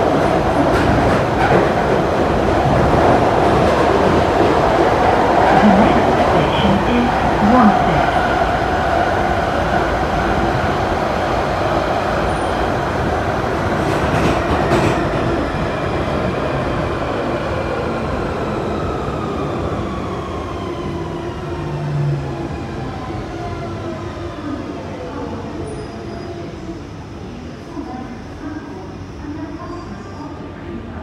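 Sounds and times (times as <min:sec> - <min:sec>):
train wheels rumbling on rail: 0:00.0 - 0:22.5.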